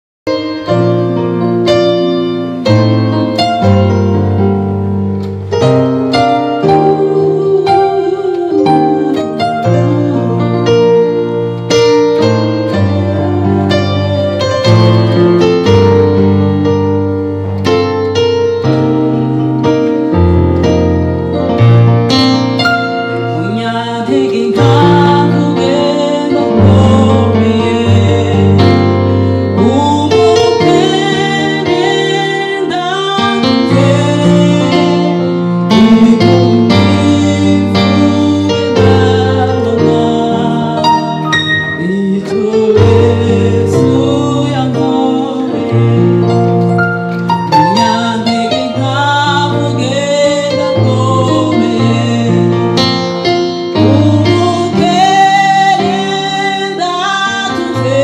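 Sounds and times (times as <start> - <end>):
keyboard playing piano chords: 0.2 - 58.0
woman singing: 6.4 - 11.2, 12.2 - 15.0, 23.2 - 46.6, 47.6 - 52.8, 53.8 - 58.0.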